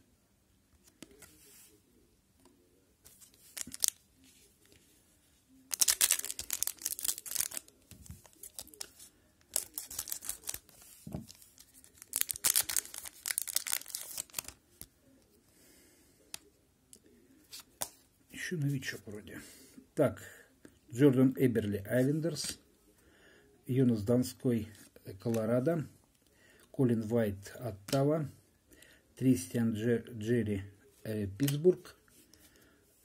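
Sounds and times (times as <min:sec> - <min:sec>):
wrapper crinkling and tearing: 0:03.1 - 0:04.0, 0:05.7 - 0:14.6.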